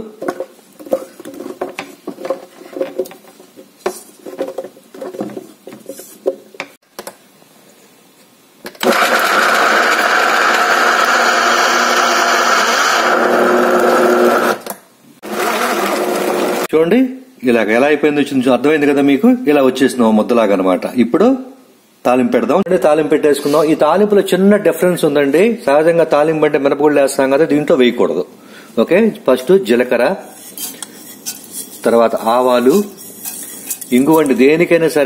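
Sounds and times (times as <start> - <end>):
electric mixer grinder running: 8.8 - 14.6, 15.2 - 16.7.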